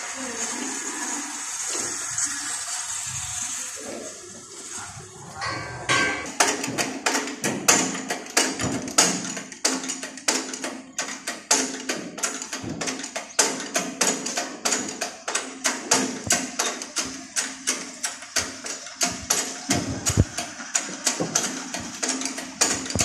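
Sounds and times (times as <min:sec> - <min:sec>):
rapid sharp knocks: 0:05.9 - 0:23.0.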